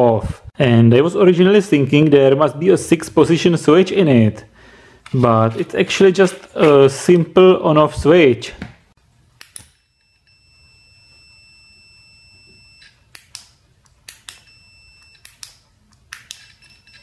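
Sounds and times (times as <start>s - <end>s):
high continuity beep: 9.8s - 13.1s, 14.4s - 15.3s, 16.5s - 17.0s.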